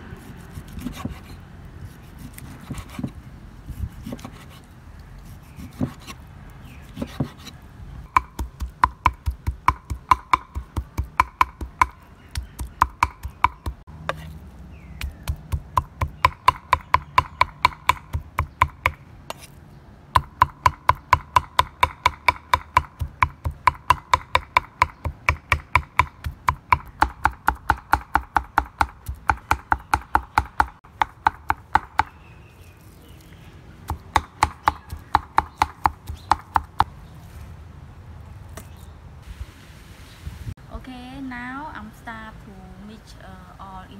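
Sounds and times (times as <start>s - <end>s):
cleaver chopping on wooden board: 0.7s - 1.3s, 2.2s - 3.2s, 5.5s - 6.2s, 6.9s - 7.5s, 8.1s - 14.4s, 15.0s - 19.5s, 20.2s - 32.2s, 33.9s - 36.9s.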